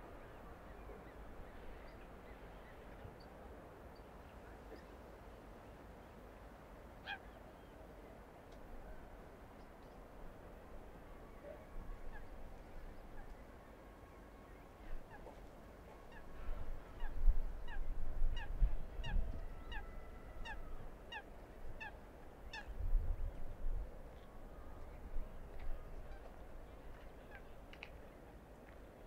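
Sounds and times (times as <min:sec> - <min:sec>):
wind rumbling on microphone: 0:16.2 - 0:28.2.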